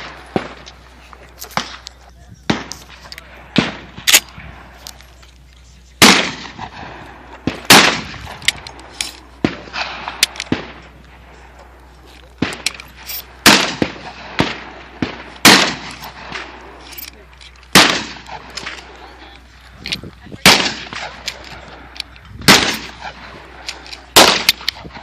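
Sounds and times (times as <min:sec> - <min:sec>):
gunshots with echo: 0:06.0 - 0:08.4, 0:13.4 - 0:16.7, 0:17.7 - 0:18.9, 0:20.4 - 0:25.0.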